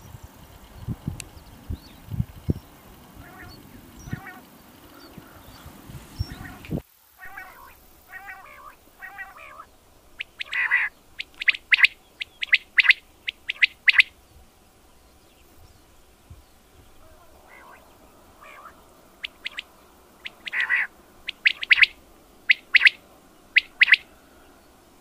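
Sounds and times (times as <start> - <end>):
quail calling: 3.2 - 14.2, 16.9 - 24.6.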